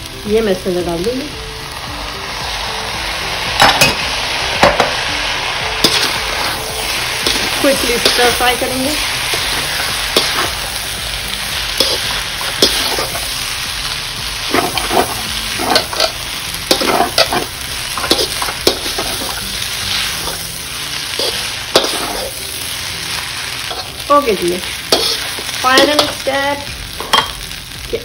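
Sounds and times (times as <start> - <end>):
wok sizzling: 0.0 - 28.0
metal spatula scraping wok: 5.8 - 13.5, 14.4 - 27.4.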